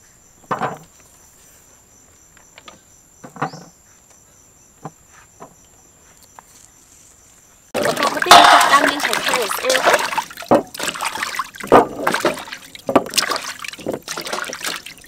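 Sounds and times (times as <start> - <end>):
insects chirping trill: 0.0 - 15.0
loud water splash: 7.8 - 15.0.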